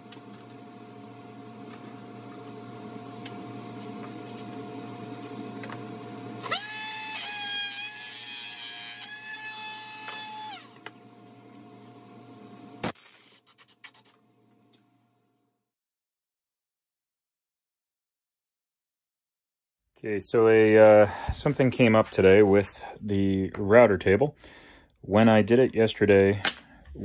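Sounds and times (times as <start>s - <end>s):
trim router whining: 0.0s - 12.1s.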